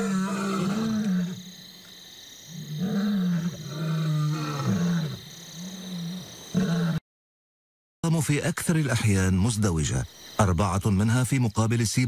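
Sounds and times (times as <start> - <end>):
lion roaring: 0.0 - 1.6, 2.5 - 7.0.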